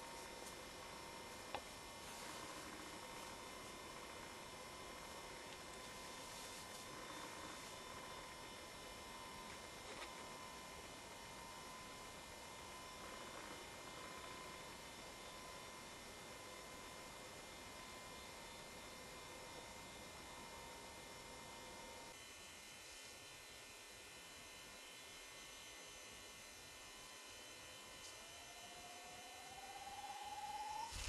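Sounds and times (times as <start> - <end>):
faint hiss and hum: 0.0 - 31.0
faint rising whine: 24.9 - 31.0.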